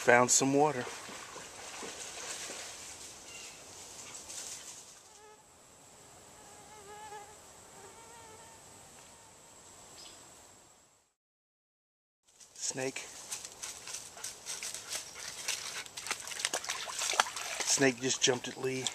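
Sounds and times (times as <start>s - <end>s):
flying insect buzzing: 4.5s - 9.4s.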